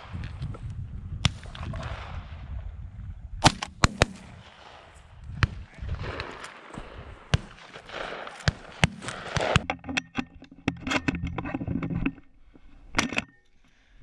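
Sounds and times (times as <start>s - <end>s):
shotguns firing: 3.4s - 9.6s.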